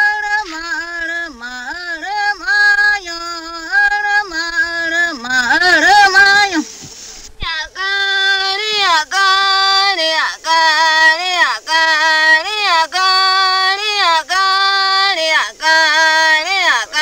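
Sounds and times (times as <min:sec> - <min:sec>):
high voice singing unaccompanied: 0:00.0 - 0:17.0.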